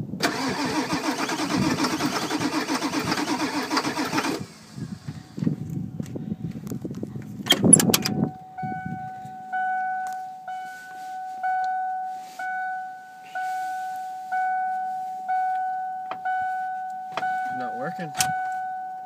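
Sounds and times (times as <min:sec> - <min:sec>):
diesel engine cranking on starter: 0:00.2 - 0:05.5
warning chime dinging: 0:08.1 - 0:19.0.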